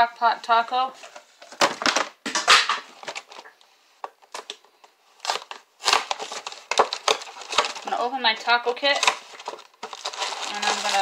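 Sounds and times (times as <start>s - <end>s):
rustling scrapes: 0.5s - 1.6s, 9.1s - 11.0s
food containers clicking and tapping: 1.1s - 7.9s, 8.8s - 11.0s.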